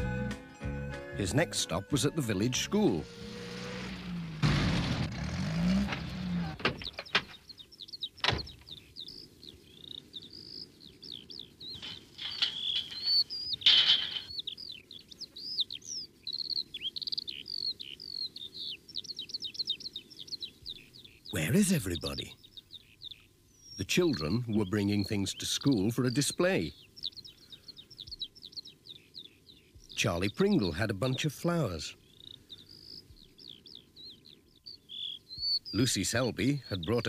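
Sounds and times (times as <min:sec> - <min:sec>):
small birds chirping: 0:00.9 - 0:04.4, 0:05.4 - 0:37.0
van engine rumble: 0:02.5 - 0:07.4.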